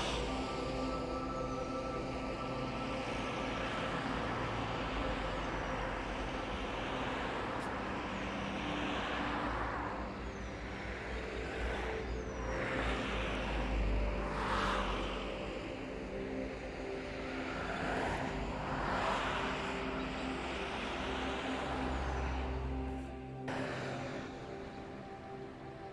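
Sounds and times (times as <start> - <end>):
low traffic rumble: 0.0 - 25.9
vehicles passing: 0.0 - 25.9.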